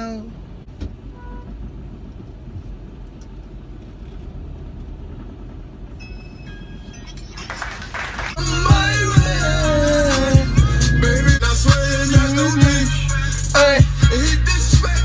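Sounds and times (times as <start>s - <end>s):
car cabin engine rumble: 6.9s - 15.0s.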